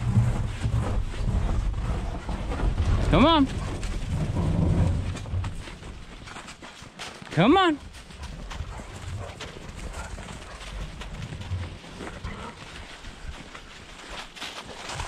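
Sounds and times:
dogs running through snow: 0.0 - 15.0
footsteps crunching through snow: 2.9 - 15.0.

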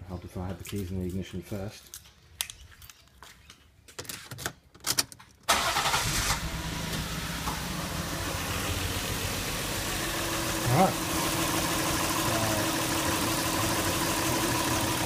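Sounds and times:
car engine starting and idling: 5.5 - 15.0.

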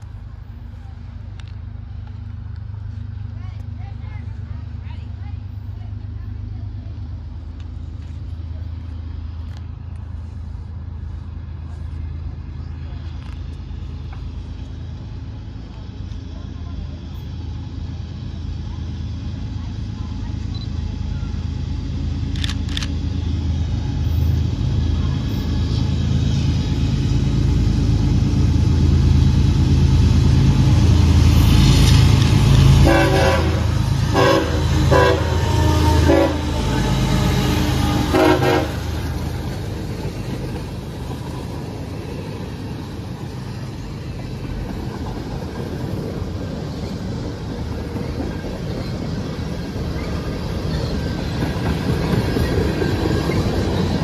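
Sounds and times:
freight cars rolling on rails: 0.0 - 54.0
locomotive engine rumble: 0.0 - 54.0
train horn blasts: 32.8 - 39.0.

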